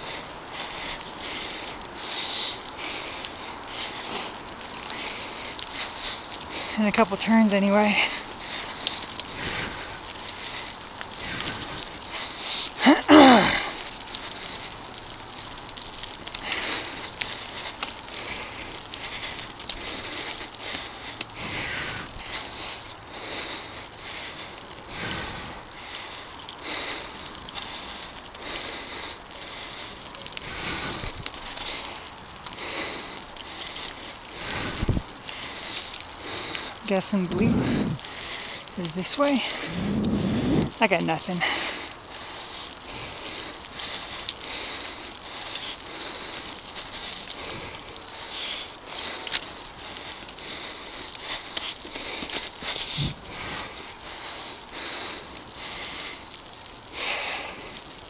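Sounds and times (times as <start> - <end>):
bike clicks and rattles: 0.0 - 7.2, 8.0 - 12.9, 13.6 - 36.8, 41.4 - 58.0
bike tyres crunching on gravel: 0.0 - 58.0.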